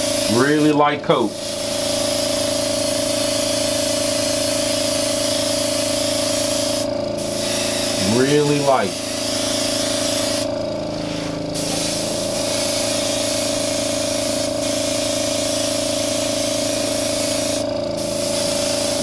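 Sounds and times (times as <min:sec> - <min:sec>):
steady hum: 0:00.0 - 0:02.6, 0:05.8 - 0:19.0
airbrush spraying hiss: 0:01.4 - 0:19.0.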